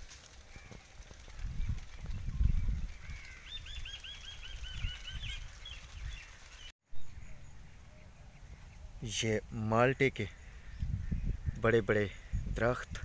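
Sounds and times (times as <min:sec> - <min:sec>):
bird chirping: 0:01.6 - 0:09.1
low rumbling microphone noise: 0:06.9 - 0:13.0.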